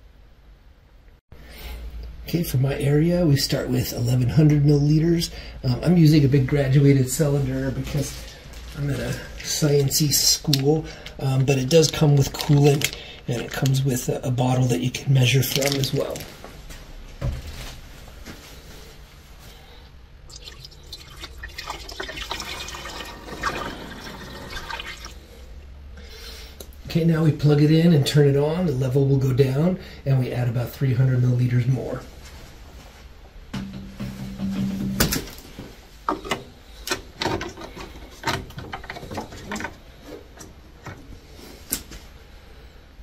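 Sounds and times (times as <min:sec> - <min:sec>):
water pouring into funnel: 0:20.3 - 0:25.2.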